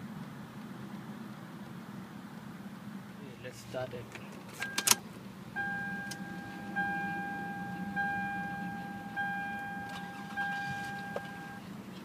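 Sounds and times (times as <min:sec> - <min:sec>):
car warning chime dinging: 0:04.6 - 0:11.7.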